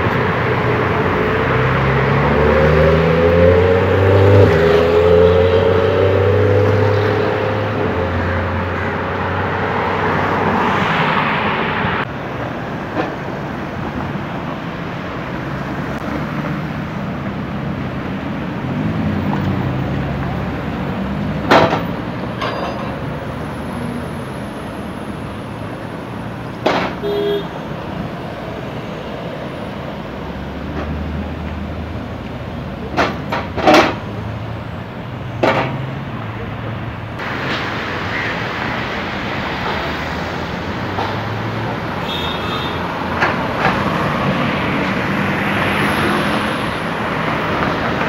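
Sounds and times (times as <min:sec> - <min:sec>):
car passing by: 0:00.0 - 0:12.1, 0:35.7 - 0:48.0
road traffic: 0:00.0 - 0:48.0
sports car engine pulling away: 0:01.1 - 0:08.6.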